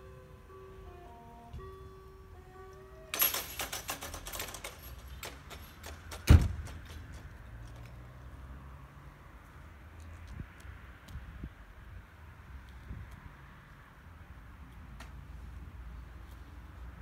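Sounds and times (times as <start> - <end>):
electronic crossing bells: 0.0 - 5.8
metallic clattering of barriers: 3.1 - 7.8.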